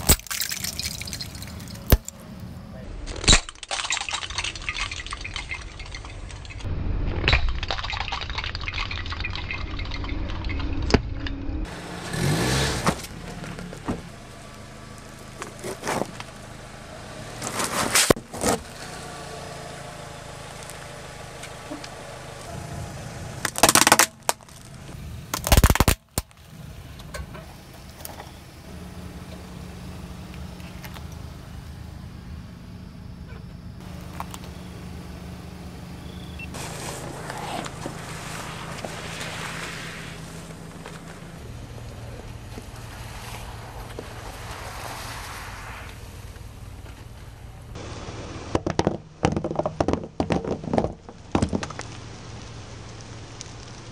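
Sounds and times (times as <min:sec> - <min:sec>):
loud cracks and crunches: 0:00.0 - 0:02.2, 0:23.4 - 0:26.4
car tyre crushing objects: 0:00.0 - 0:11.2, 0:11.9 - 0:31.8, 0:33.8 - 0:53.9
car engine running: 0:09.0 - 0:25.4, 0:26.3 - 0:49.2.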